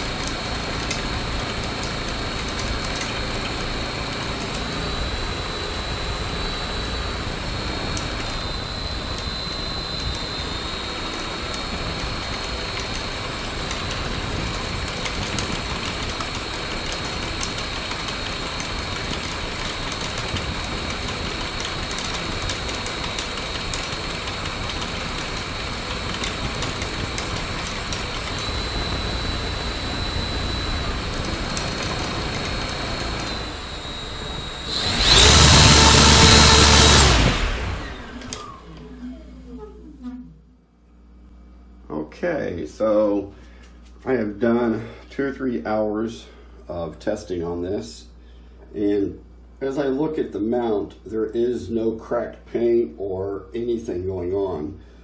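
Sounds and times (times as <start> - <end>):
electric motor high whine: 0.0 - 39.0.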